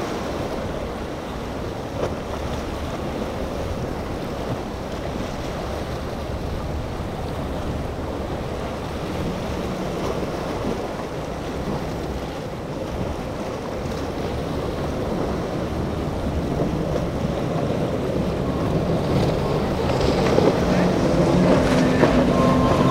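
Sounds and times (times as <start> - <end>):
outboard engines running at speed: 0.0 - 22.9
surf: 0.0 - 22.9.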